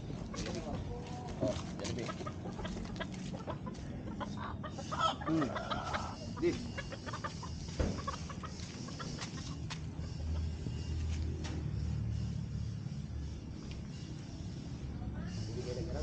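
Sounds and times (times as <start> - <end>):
roosters clucking: 0.0 - 16.0
rooster calls: 2.1 - 9.1.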